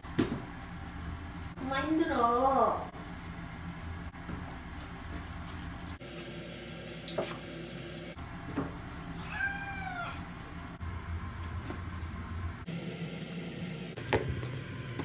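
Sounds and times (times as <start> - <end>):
cat meowing: 9.2 - 10.3.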